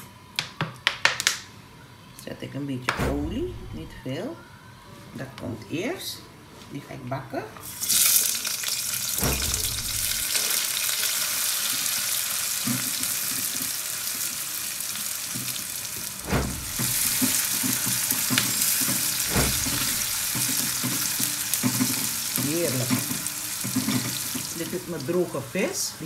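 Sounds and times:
food sizzling in hot oil: 0:07.6 - 0:26.0.

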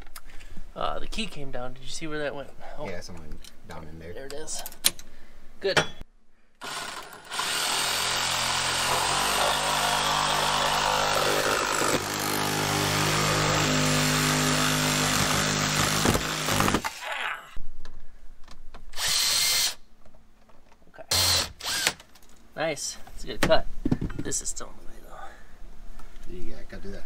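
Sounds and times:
cordless power saw cutting: 0:06.6 - 0:16.9, 0:21.1 - 0:22.0.

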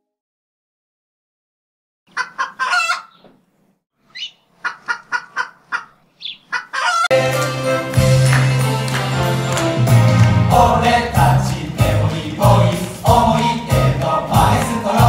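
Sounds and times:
chicken clucking: 0:02.1 - 0:03.2, 0:04.1 - 0:07.1
music: 0:07.1 - 0:15.0.

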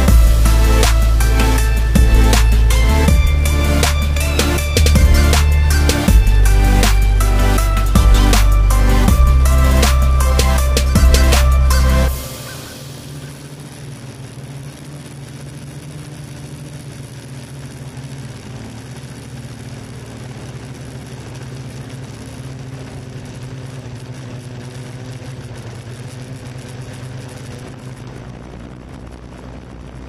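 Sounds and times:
drone propellers humming: 0:00.0 - 0:30.0.

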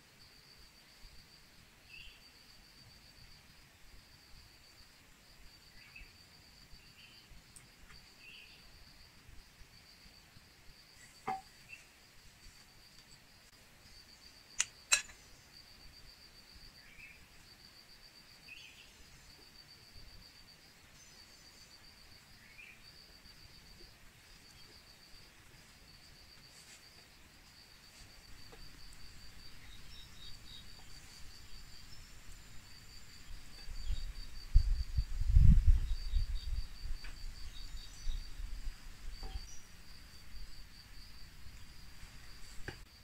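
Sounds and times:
insect chirping: 0:00.0 - 0:43.0
faint bird chirps: 0:01.9 - 0:02.4, 0:05.7 - 0:06.2, 0:06.8 - 0:08.8, 0:18.4 - 0:19.3
sharp clicks: 0:14.6 - 0:15.2.

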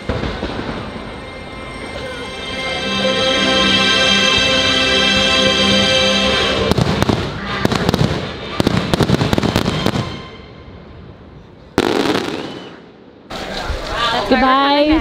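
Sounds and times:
firework bangs and crackles: 0:00.0 - 0:01.9, 0:06.6 - 0:10.3, 0:11.8 - 0:14.0
music with held notes: 0:00.1 - 0:11.0.

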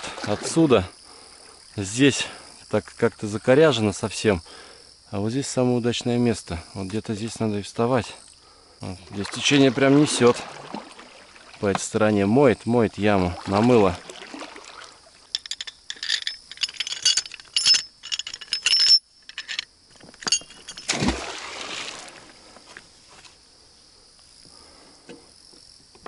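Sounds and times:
metal anchor clinking: 0:15.3 - 0:21.1.

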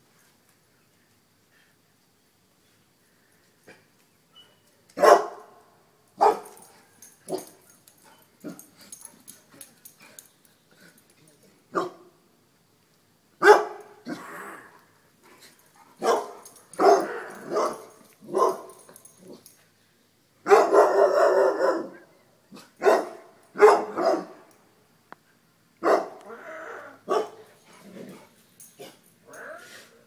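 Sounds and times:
dogs barking: 0:05.0 - 0:05.4, 0:06.2 - 0:06.6, 0:13.4 - 0:13.9, 0:16.0 - 0:18.8, 0:20.5 - 0:22.0, 0:22.8 - 0:24.4, 0:25.8 - 0:26.3, 0:27.1 - 0:27.4.

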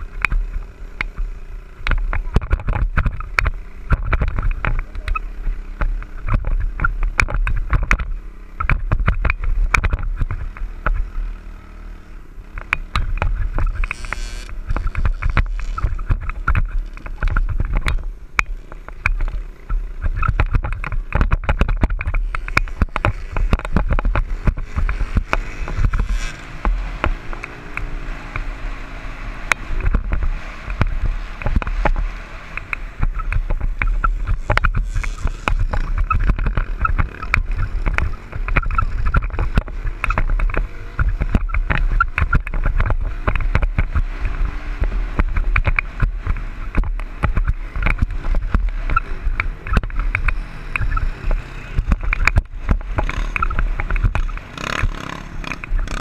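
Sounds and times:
dirt bike engine revving: 0:10.4 - 0:16.9, 0:22.2 - 0:56.0.

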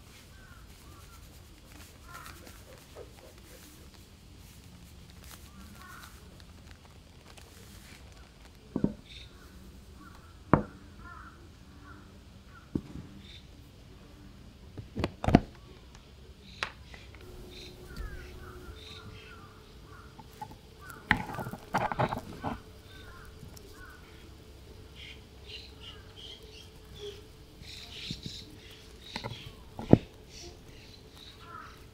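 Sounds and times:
faint bird calls: 0:00.0 - 0:06.7, 0:07.3 - 0:14.3, 0:15.5 - 0:31.9
plastic containers clicking: 0:20.2 - 0:24.0.

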